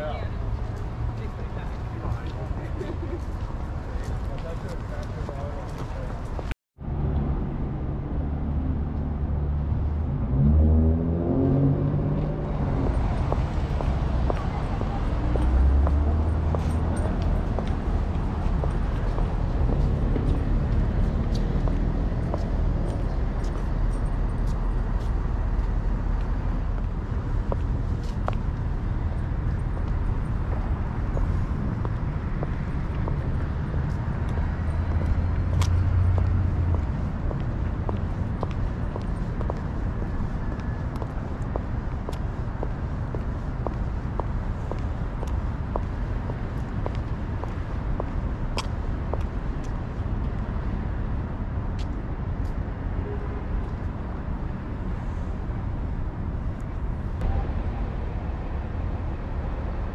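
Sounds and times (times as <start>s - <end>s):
street traffic hum: 0.0s - 59.9s
vehicle engine accelerating: 6.8s - 24.4s, 29.0s - 39.8s.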